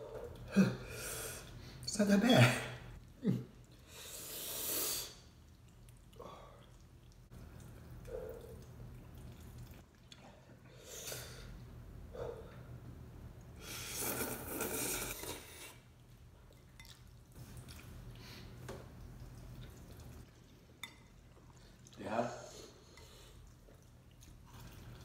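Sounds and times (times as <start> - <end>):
noodle slurp: 13.6 - 16.0.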